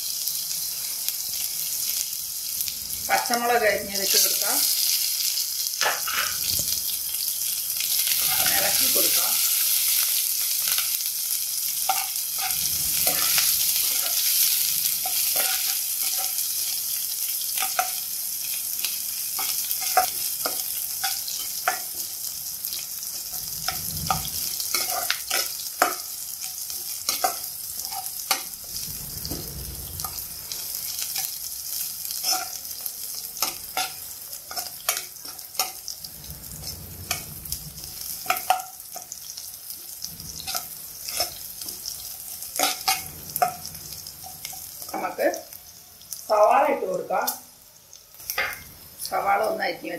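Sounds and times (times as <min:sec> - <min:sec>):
food sizzling in a pan: 0:00.0 - 0:49.9
metal spatula scraping a pan: 0:03.1 - 0:07.0, 0:11.7 - 0:45.0.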